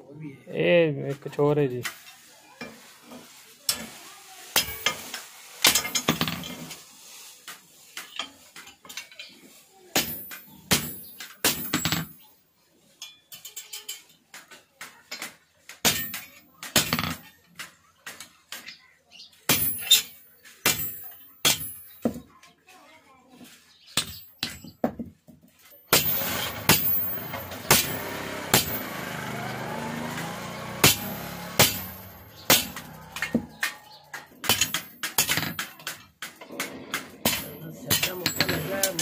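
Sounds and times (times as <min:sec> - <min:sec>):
hammer striking metal on anvil: 0:25.9 - 0:29.0, 0:30.8 - 0:33.8, 0:34.4 - 0:35.7.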